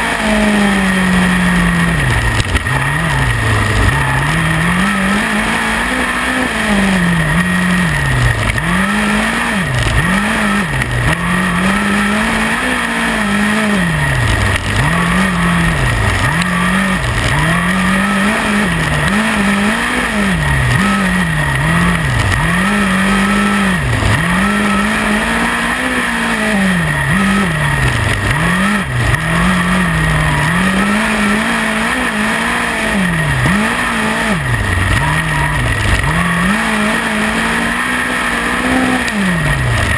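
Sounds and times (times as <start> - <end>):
race car engine revving: 0.0 - 39.9.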